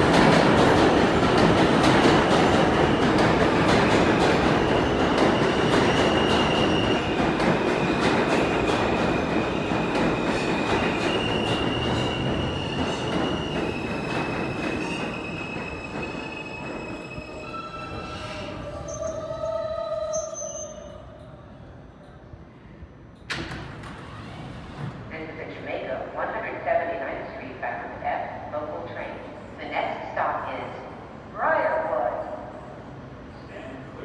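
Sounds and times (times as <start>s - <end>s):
train wheels rumbling: 0.0s - 22.2s.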